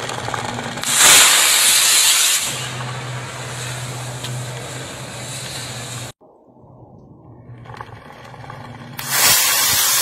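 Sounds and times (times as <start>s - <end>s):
steady low hum: 0.0s - 9.8s
rocket motor hissing: 0.8s - 6.2s, 9.0s - 10.0s.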